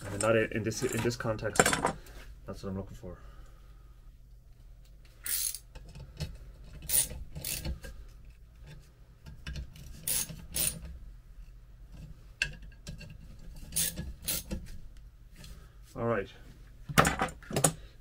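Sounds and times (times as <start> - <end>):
ratchet wrench clicking: 5.2 - 5.7, 6.9 - 7.8, 10.0 - 10.8, 13.8 - 14.5.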